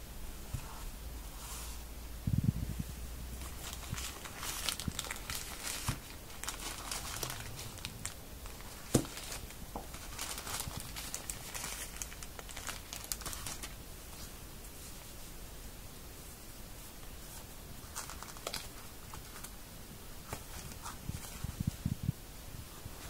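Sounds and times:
plastic bags crinkling: 3.4s - 13.8s, 17.8s - 19.6s.

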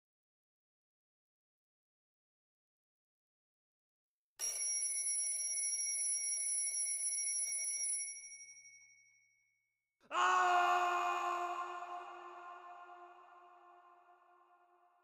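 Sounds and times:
bell-like electronic chime: 4.4s - 9.4s.

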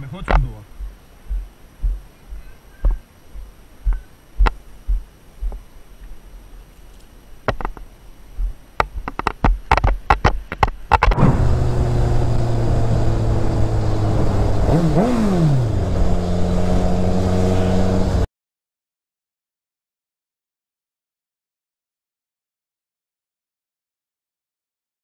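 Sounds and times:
sharp clicks and knocks: 0.2s - 0.5s, 3.9s - 5.6s, 6.9s - 7.9s, 8.8s - 11.3s
motorcycle engine running: 11.2s - 18.3s.

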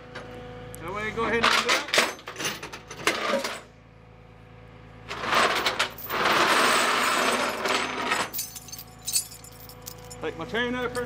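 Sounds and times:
chain scraping across metal deck: 5.1s - 10.2s.

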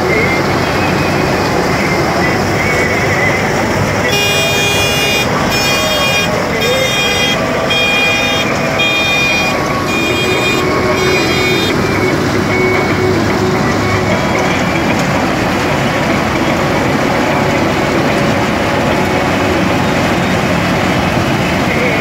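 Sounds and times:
combine harvester running: 0.0s - 22.0s
electronic beeper pulsing: 4.1s - 14.7s.

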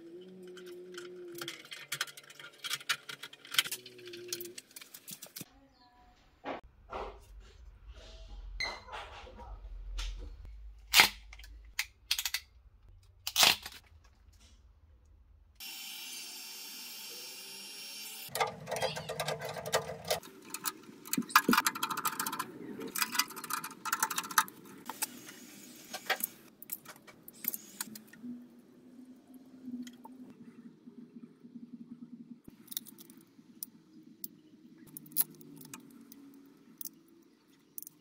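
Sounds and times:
metal wire terminals rattling: 18.3s - 24.9s.

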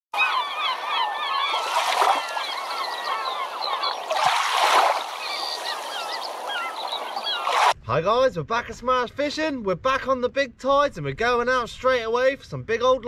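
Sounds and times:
flock of birds chirping: 0.2s - 7.8s.

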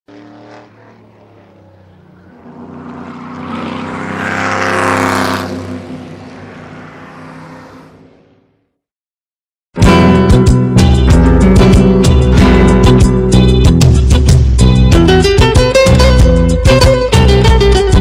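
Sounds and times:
car engine passing by: 0.1s - 8.6s.

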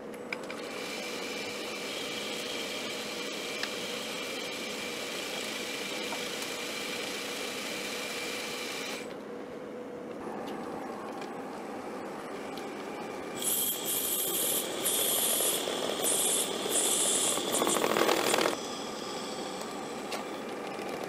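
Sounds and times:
lathe whirring with high whine: 0.1s - 10.2s, 11.7s - 21.0s
lathe tool cutting a groove: 13.4s - 20.4s.

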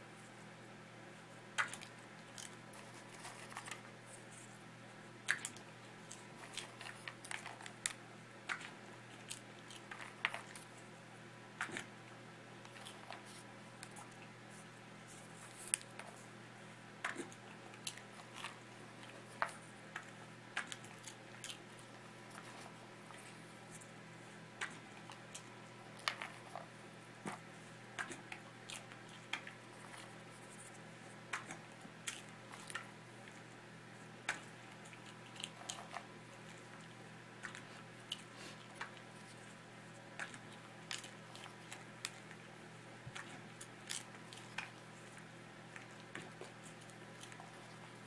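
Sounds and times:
faint steady hum: 0.0s - 48.0s
dog crunching popcorn: 5.2s - 10.9s, 12.6s - 14.3s, 17.0s - 23.4s, 24.6s - 33.5s, 34.3s - 42.5s, 43.1s - 48.0s.

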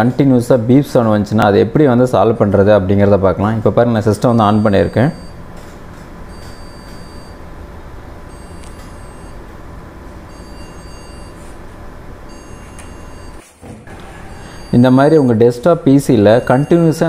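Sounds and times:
steady hum: 0.0s - 17.0s
computer beeper beeping: 4.2s - 5.4s, 6.3s - 7.4s, 8.3s - 9.4s, 10.3s - 11.5s, 12.3s - 13.4s, 14.2s - 17.0s.

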